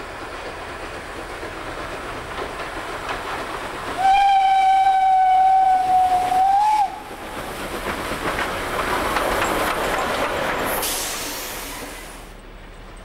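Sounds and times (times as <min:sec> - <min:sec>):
train passing rumble: 0:00.0 - 0:13.0
steam whistle: 0:04.0 - 0:07.0
short hiss: 0:10.7 - 0:12.4.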